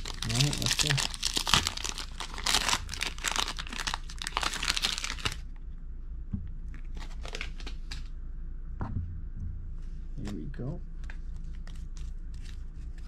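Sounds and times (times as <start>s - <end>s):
cards rustling: 0.0s - 5.4s, 6.7s - 8.1s, 11.0s - 13.0s
foil wrapper crinkling and tearing: 0.0s - 5.4s, 6.8s - 8.1s.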